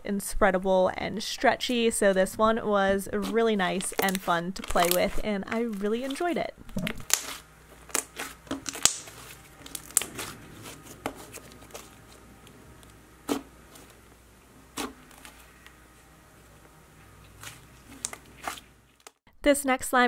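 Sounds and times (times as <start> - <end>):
slime sticky clicks and pops: 6.8 - 9.1.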